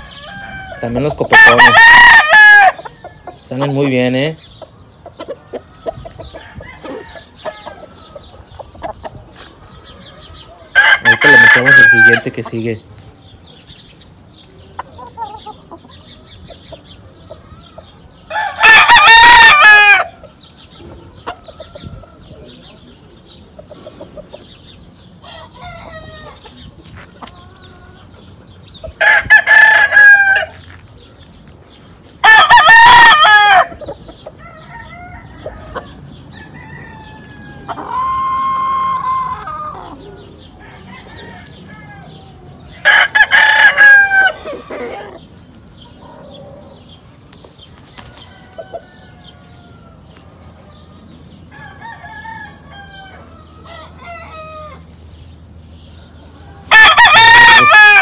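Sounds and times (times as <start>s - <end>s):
roosters crowing: 0.0s - 58.0s.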